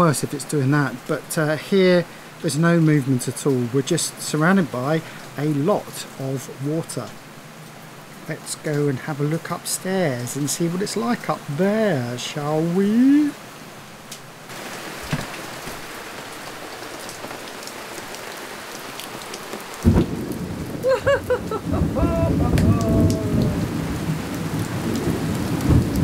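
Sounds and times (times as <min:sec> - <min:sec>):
heavy rain: 0:00.0 - 0:26.0
thunder clap rumbling: 0:19.8 - 0:26.0.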